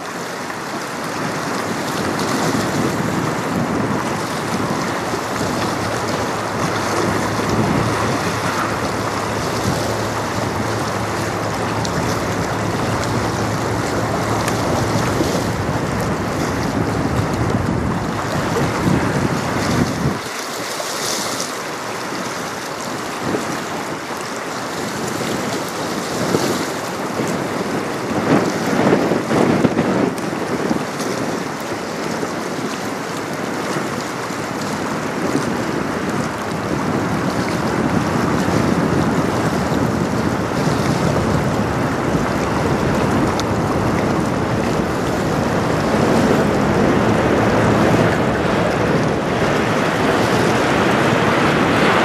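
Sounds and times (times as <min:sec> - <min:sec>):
river water lapping: 0:00.0 - 0:52.0
wind buffeting microphone: 0:00.0 - 0:52.0
low rumble: 0:02.9 - 0:20.0.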